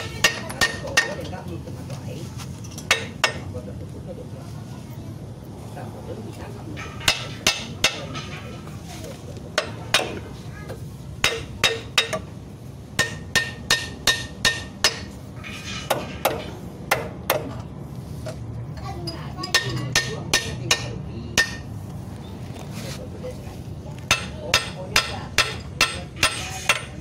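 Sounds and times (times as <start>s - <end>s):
hammer striking metal: 0.0s - 1.3s, 6.8s - 8.4s, 11.2s - 12.3s, 13.0s - 17.6s, 19.5s - 21.7s, 24.1s - 27.0s.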